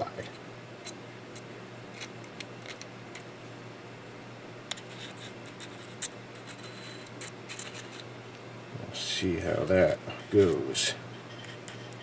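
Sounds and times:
metal scraping and rubbing: 10.1 - 12.0.

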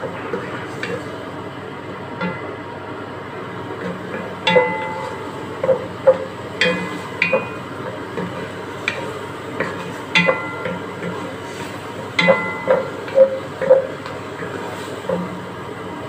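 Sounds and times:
food sizzling in oil: 0.0 - 16.0
wooden spoon knocking metal pot: 4.5 - 8.3, 8.9 - 11.0, 12.2 - 13.9.

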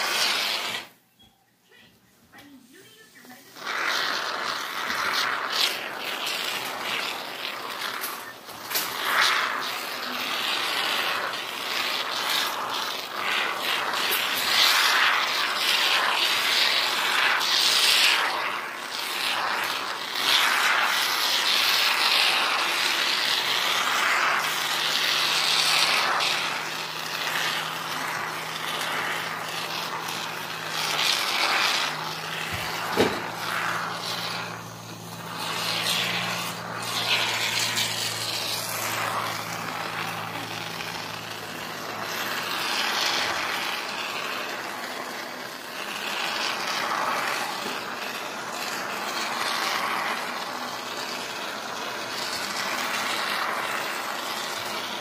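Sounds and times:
aerosol foam spray hissing: 0.0 - 1.0, 2.4 - 55.0
sharp knock: 33.0 - 33.2.

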